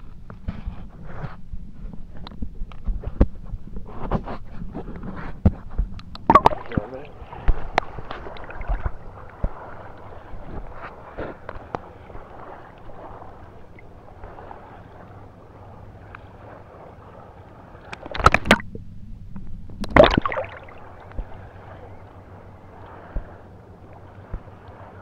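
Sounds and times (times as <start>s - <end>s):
sea water sloshing and splashing: 1.8s - 25.0s
muffled underwater sound: 5.7s - 25.0s.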